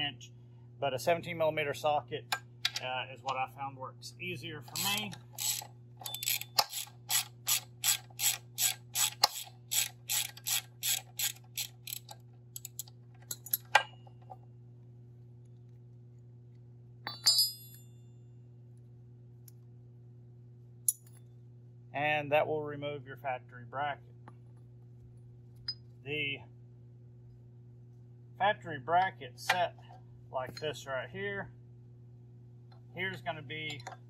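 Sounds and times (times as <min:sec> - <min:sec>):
steady low hum: 0:00.0 - 0:34.0
socket ratchet clicking: 0:04.7 - 0:13.7
ringing metallic clink: 0:17.1 - 0:18.0.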